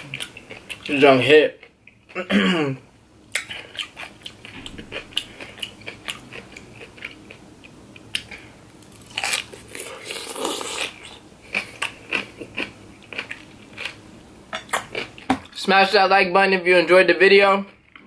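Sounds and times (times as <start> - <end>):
pickle crunching when chewed: 3.3 - 14.0.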